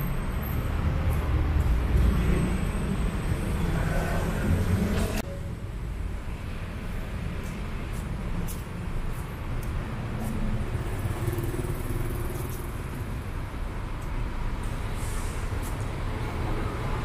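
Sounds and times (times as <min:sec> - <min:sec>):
street traffic rumble: 0:00.0 - 0:17.0.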